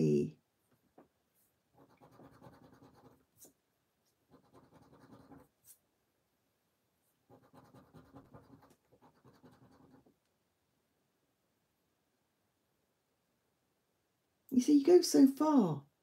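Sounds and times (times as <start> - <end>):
poker chip scratching card: 1.8 - 3.6, 4.3 - 5.8, 7.3 - 10.1.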